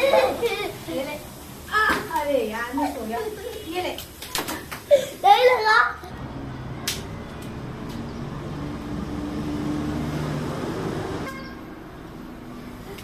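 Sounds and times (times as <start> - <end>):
passing vehicle engine hum: 6.1 - 13.0.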